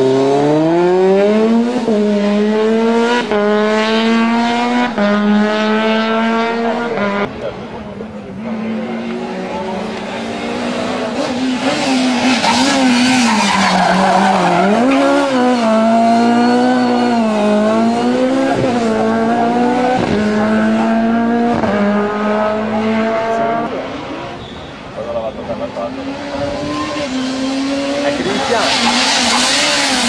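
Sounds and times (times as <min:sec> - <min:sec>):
rally car engine revving: 0:00.0 - 0:30.0
tyres squealing: 0:28.2 - 0:30.0.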